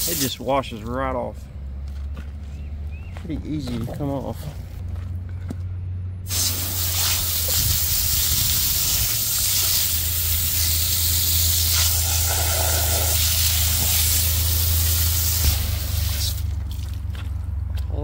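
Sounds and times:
hose spray hissing on metal: 0.0 - 0.4, 6.3 - 16.5.

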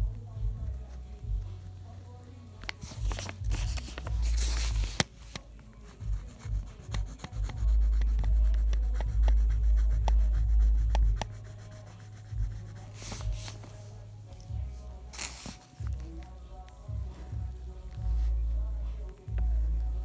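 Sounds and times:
fingers rubbing on phone: 2.7 - 14.1.

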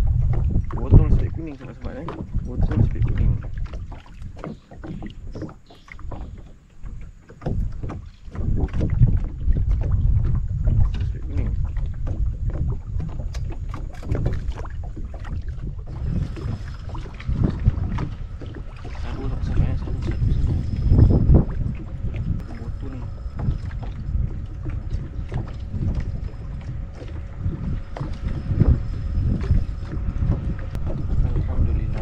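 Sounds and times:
wind buffeting the microphone: 0.0 - 32.0.

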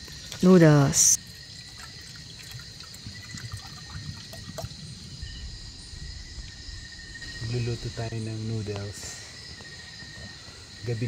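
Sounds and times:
insects trilling: 0.0 - 11.0
water pouring into a pot: 1.2 - 4.9.

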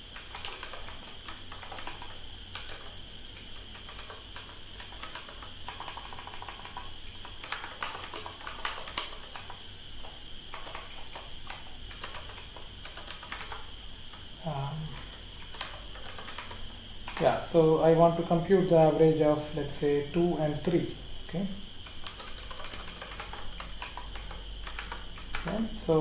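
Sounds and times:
keyboard typing clicks: 0.1 - 17.4, 21.8 - 25.8
high-pitched hiss: 8.3 - 26.0.

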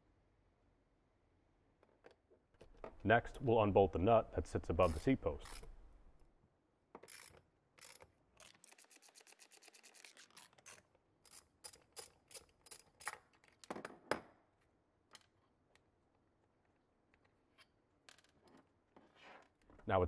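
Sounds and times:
socket ratchet clicking: 5.4 - 5.8.

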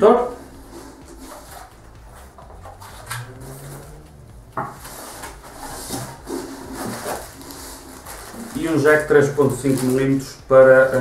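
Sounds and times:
packaging rustling: 4.7 - 11.0.

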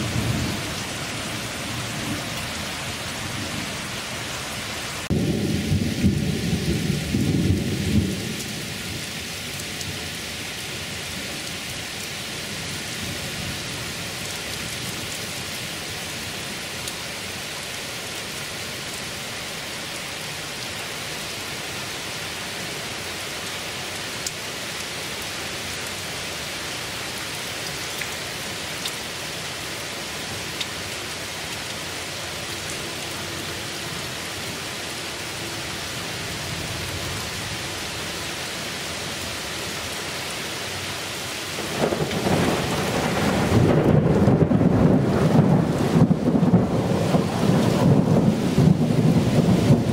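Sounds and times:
thunder rumbling: 0.0 - 4.1, 5.0 - 9.2, 41.6 - 49.9
heavy rain pouring: 0.0 - 49.9.

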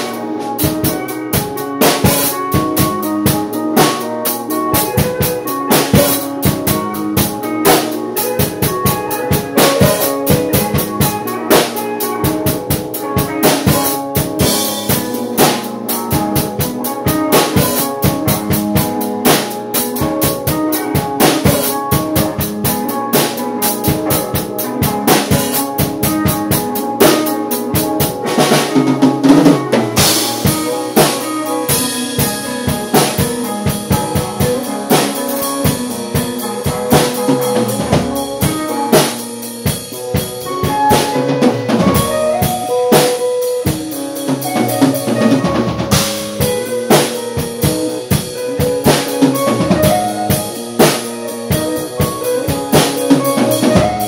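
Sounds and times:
drum kit beat: 0.0 - 54.0
sustained guitar notes: 0.0 - 54.0.

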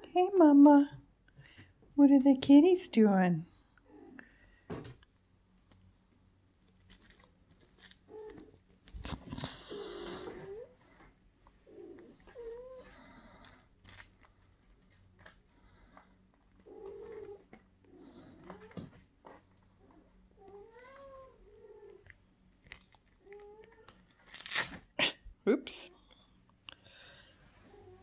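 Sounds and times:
small clicks and rustles: 4.9 - 24.6.

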